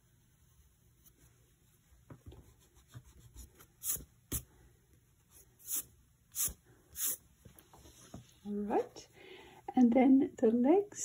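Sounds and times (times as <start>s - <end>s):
hand brushing over paper: 0.0s - 4.6s, 5.2s - 8.5s.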